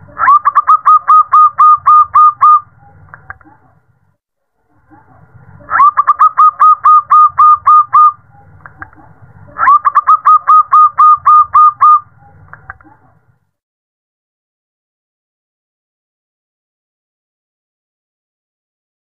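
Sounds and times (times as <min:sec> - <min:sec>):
dove calling: 0:00.0 - 0:03.0, 0:05.6 - 0:12.8.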